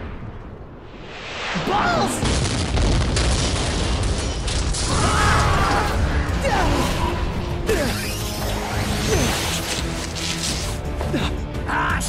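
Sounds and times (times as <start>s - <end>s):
wall breaking apart rumble: 2.2s - 5.7s
debris crashing: 2.2s - 7.4s.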